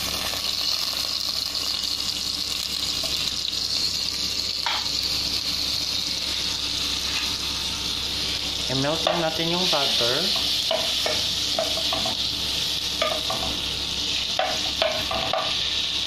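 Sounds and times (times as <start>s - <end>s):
butter sizzling in a frying pan: 0.0s - 16.0s.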